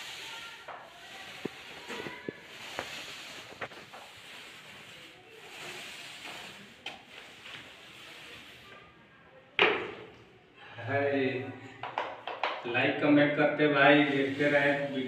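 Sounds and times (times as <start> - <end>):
paint roller swishing on wall: 0.0 - 9.1, 13.7 - 15.0.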